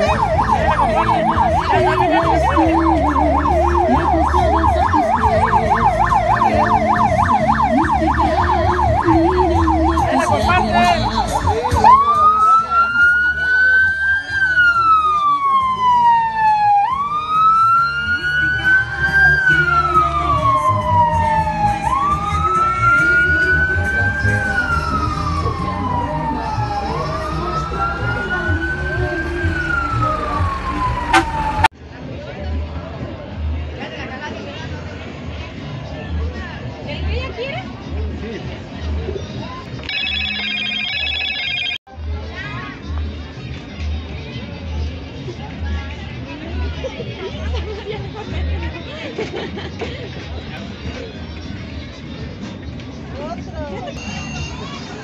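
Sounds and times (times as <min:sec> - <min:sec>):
electronic siren yelping: 0:00.0 - 0:31.7, 0:39.9 - 0:41.8.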